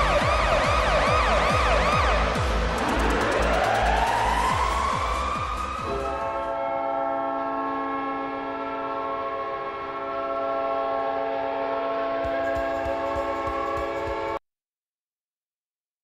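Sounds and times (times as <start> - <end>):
goal horn blast: 5.8 - 14.4.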